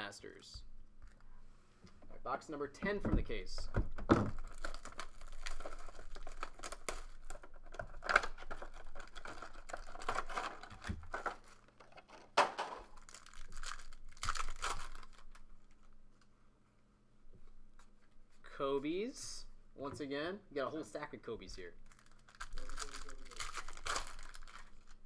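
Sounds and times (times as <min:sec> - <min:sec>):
plastic wrapping tearing and crinkling: 0:04.2 - 0:15.9, 0:21.8 - 0:25.0
foil packs handled: 0:04.3 - 0:12.2, 0:12.8 - 0:15.8, 0:21.8 - 0:25.0.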